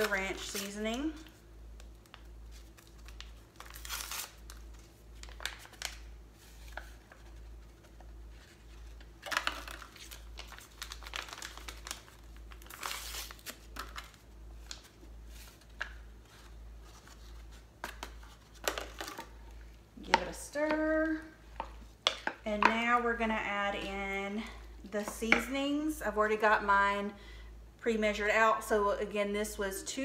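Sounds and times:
paper packets tearing and crinkling: 0.0 - 19.3.

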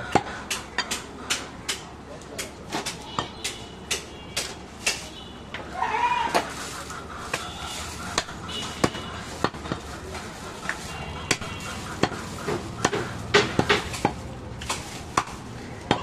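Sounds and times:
cleaver chopping meat on wood: 0.0 - 5.1, 8.1 - 9.9, 10.7 - 16.0.

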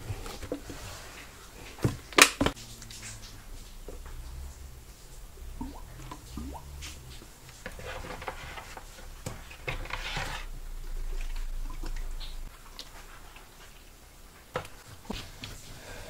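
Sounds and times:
plastic clicking and rustling: 1.6 - 4.2.

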